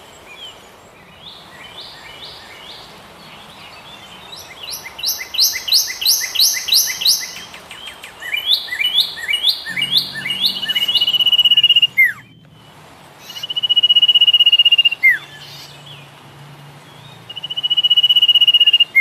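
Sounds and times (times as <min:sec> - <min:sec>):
bird high trill: 0:04.7 - 0:07.6, 0:08.6 - 0:12.4.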